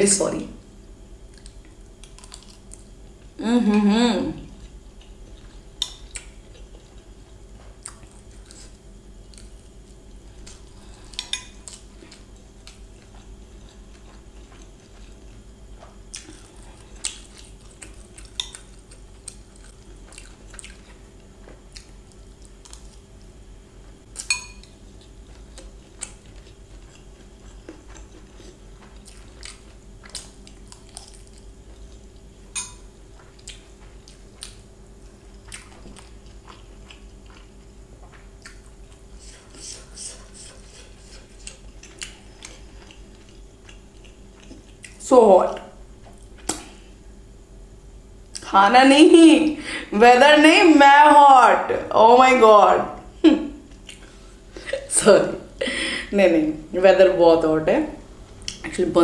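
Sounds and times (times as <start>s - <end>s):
faint steady hum: 0.0s - 59.0s
quiet chewing: 1.3s - 3.4s, 4.4s - 47.0s, 53.5s - 54.8s, 58.3s - 58.7s.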